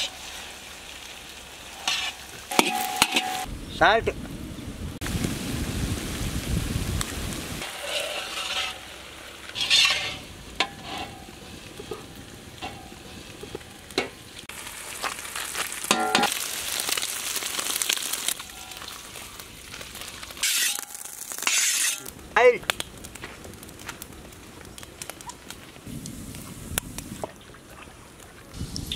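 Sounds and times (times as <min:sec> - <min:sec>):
eggs sizzling in a pan: 0:00.0 - 0:03.5, 0:06.0 - 0:22.1
metal ladle scraping a pan: 0:01.7 - 0:03.5, 0:07.6 - 0:14.2, 0:20.4 - 0:22.1.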